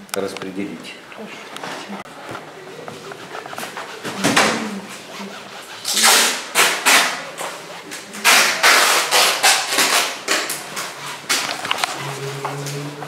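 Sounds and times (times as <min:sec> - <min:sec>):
cloth rag rubbing canvas: 0:01.6 - 0:10.0.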